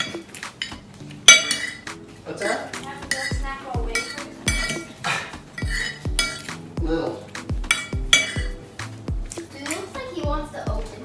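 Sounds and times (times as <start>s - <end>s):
cutlery clinking on a plate: 0.0s - 1.8s
background music with low beat: 0.0s - 11.0s.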